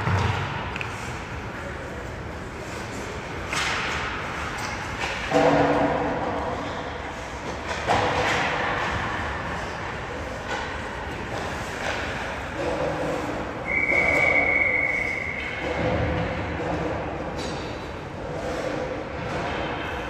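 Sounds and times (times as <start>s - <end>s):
hockey rink noise: 0.0s - 20.0s
long whistle blast: 13.7s - 15.6s.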